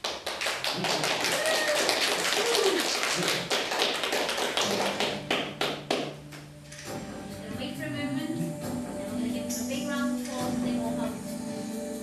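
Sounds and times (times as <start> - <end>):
crowd applauding: 0.0 - 6.2
music: 3.4 - 12.0.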